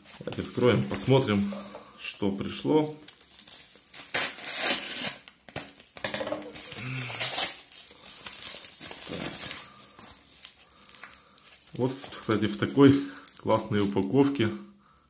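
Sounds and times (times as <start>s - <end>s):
envelope ripping and crinkling: 2.9s - 14.0s.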